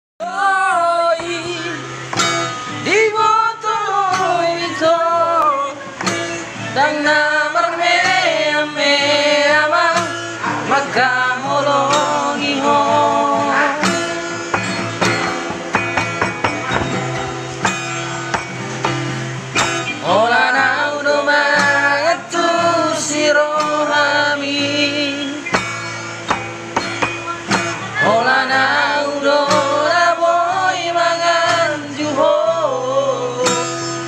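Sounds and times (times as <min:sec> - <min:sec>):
man singing: 0:00.2 - 0:02.0, 0:02.8 - 0:06.1, 0:06.7 - 0:14.2, 0:20.0 - 0:25.5, 0:27.4 - 0:34.0
guitar accompaniment: 0:00.2 - 0:34.0.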